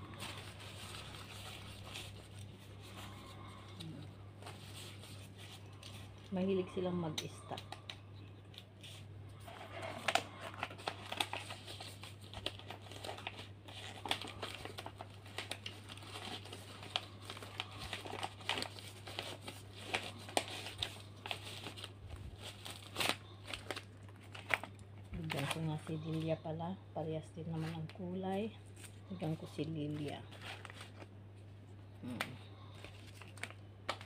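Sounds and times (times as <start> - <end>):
plastic packaging crinkling: 0.0 - 26.3, 27.6 - 31.2, 32.6 - 34.0.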